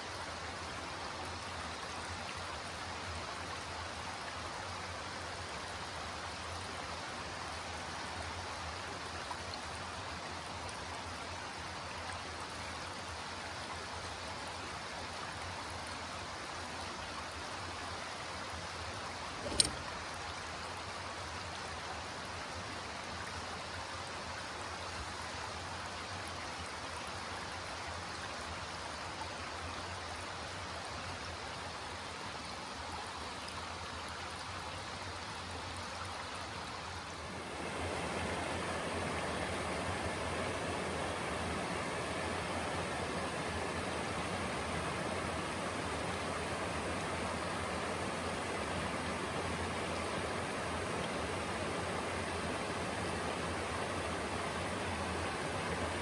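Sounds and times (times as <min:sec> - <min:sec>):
creek water rushing over rocks: 0:00.0 - 0:56.0
sharp click: 0:19.4 - 0:19.9.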